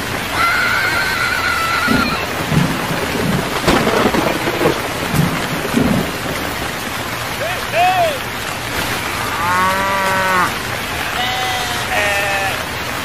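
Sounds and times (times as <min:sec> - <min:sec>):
steady rain: 0:00.0 - 0:13.0
low thunder rumbles: 0:00.7 - 0:07.8
thunder crack: 0:01.0 - 0:07.4.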